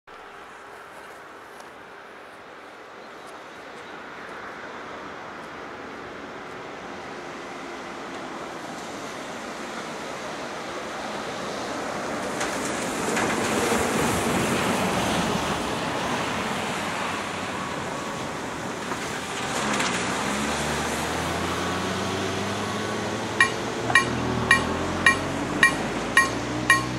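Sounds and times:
diesel locomotive rumble: 21.8s - 26.9s.

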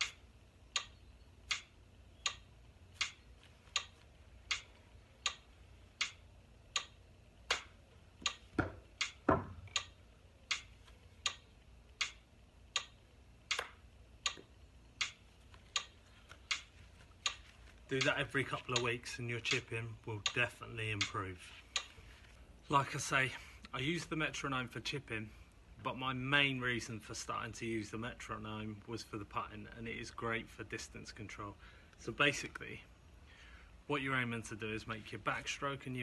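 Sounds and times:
metronome ticking: 0.0s - 21.9s.

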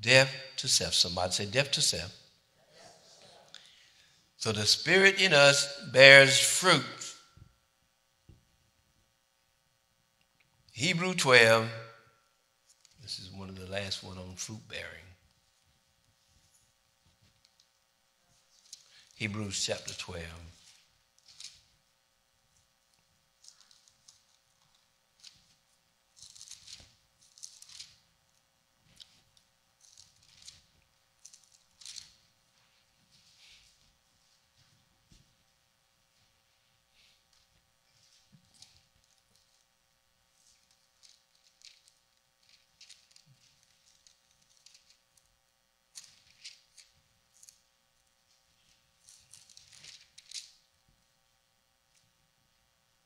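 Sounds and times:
faint steady hum: 0.0s - 53.0s
pages being turned: 20.6s - 21.8s, 23.4s - 25.6s, 26.2s - 28.0s, 28.9s - 32.2s, 40.4s - 45.1s, 45.9s - 47.6s, 48.3s - 50.6s.

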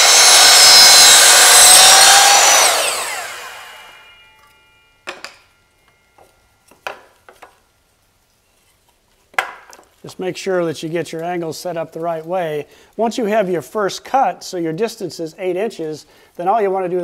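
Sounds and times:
mitre saw cutting: 0.0s - 4.2s
saw blade spinning down: 0.0s - 4.4s.

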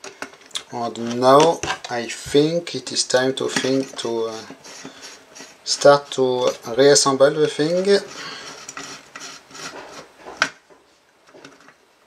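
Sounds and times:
screwdriver scraping screw: 3.5s - 6.6s, 7.6s - 10.5s.

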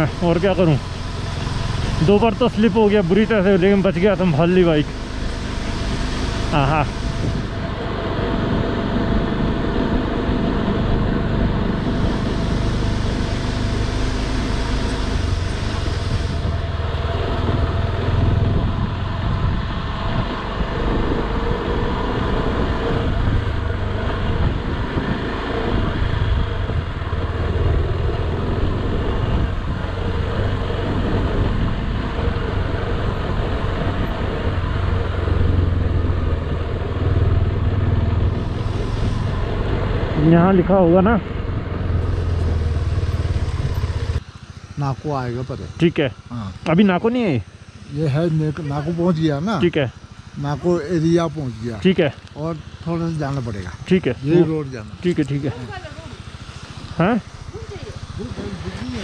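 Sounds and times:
riding noise on microphone: 0.0s - 44.8s
motorcycle engine rumble: 0.0s - 59.0s.

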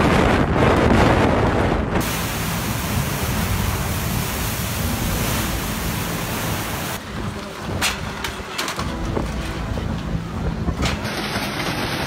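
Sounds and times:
storm waves rushing: 0.0s - 7.8s
wind: 0.0s - 12.0s.

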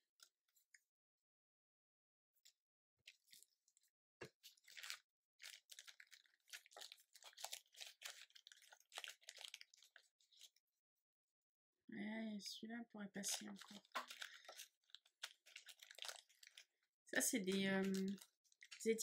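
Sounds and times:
paper and plastic crinkling: 4.2s - 10.5s, 13.2s - 16.7s, 17.4s - 19.0s.

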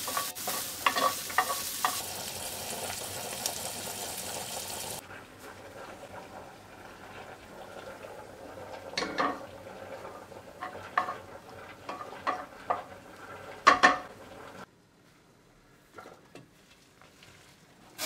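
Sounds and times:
wooden spoon scraping a pan: 0.0s - 3.4s, 5.0s - 14.7s
frying fat sizzling: 0.0s - 14.7s.

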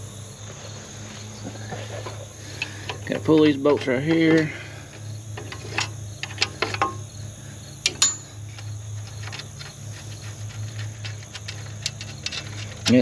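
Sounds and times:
steady low hum: 0.0s - 13.0s
sharp metallic click: 7.8s - 8.3s.

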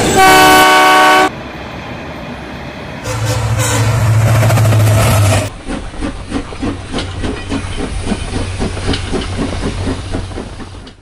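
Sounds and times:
steam locomotive exhaust chuffs: 3.1s - 11.0s.

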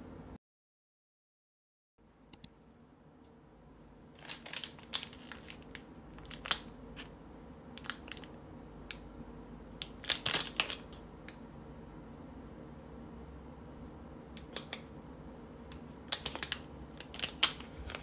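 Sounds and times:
plastic packaging crinkling: 4.2s - 7.1s, 7.8s - 8.4s, 9.8s - 11.0s, 16.1s - 18.0s.

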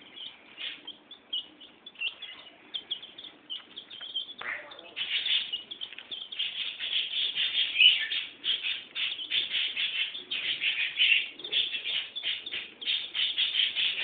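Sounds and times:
chicks peeping: 0.0s - 14.0s.

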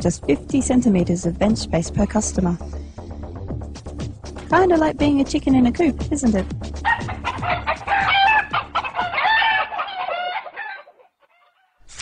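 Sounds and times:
chickens clucking: 6.9s - 11.8s.

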